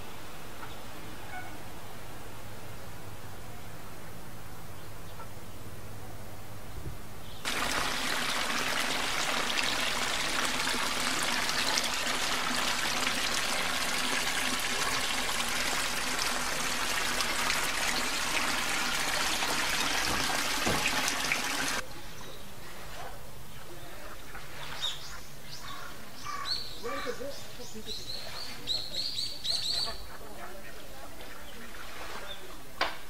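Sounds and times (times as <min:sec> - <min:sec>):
water trickling: 0:07.5 - 0:21.8.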